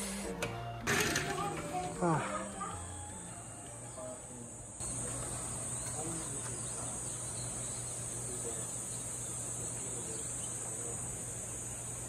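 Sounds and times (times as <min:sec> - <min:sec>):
cicadas droning: 0:02.8 - 0:12.0.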